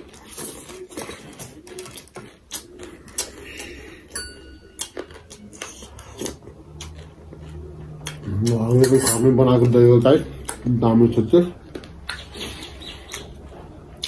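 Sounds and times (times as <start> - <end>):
chewing and mouth clicks: 0.0 - 4.2, 4.8 - 10.7, 11.6 - 14.0
metal spoon clinking steel bowl: 4.2 - 5.0.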